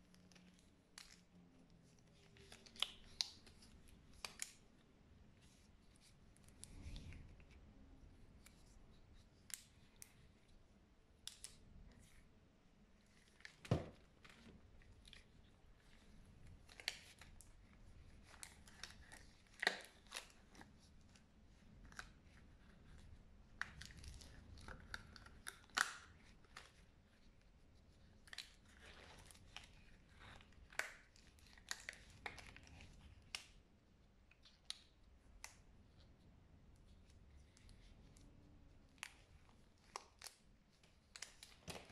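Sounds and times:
latex gloves snapping and rubbing: 2.0 - 4.6, 13.2 - 26.8.

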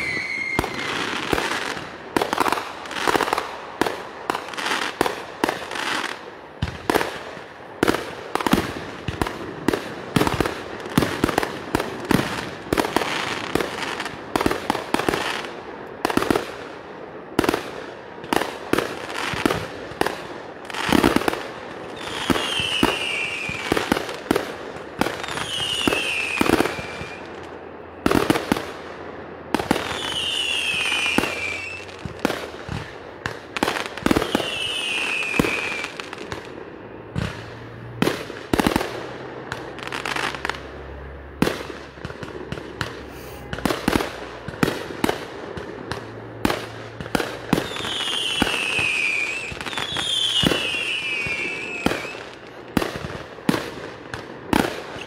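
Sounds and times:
firework whistles falling in pitch: 0.0 - 1.7, 22.0 - 23.7, 25.2 - 27.4, 29.8 - 32.0, 34.0 - 36.0, 47.6 - 52.3
fireworks bangs and crackles: 0.0 - 55.0.

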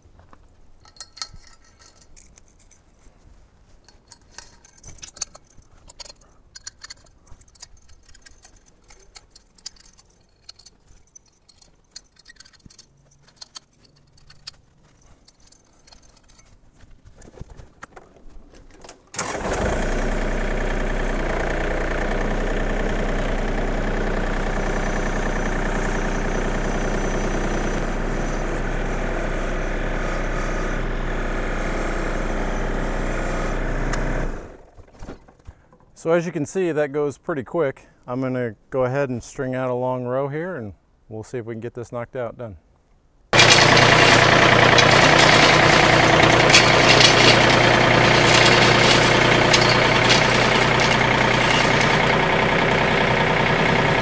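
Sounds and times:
metal clinks and rattles: 0.7 - 19.2, 43.4 - 53.4
tractor diesel engine running: 19.2 - 34.7, 43.4 - 54.0.

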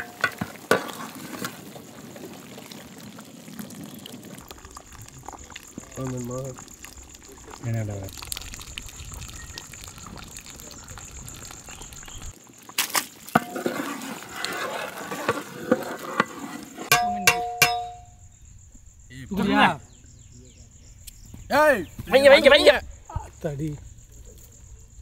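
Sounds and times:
metal pot clanging: 0.0 - 1.5, 13.3 - 14.2, 16.9 - 18.1
curry bubbling in a pot: 0.0 - 16.9
wooden paddle scraping pot: 13.4 - 18.0.

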